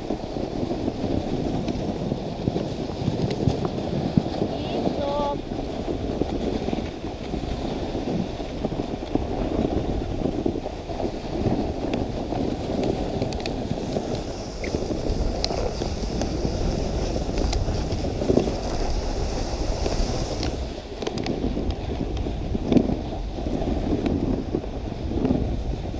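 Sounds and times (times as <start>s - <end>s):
sled runners sliding over snow: 0.0s - 25.9s
wind on microphone: 0.0s - 25.9s.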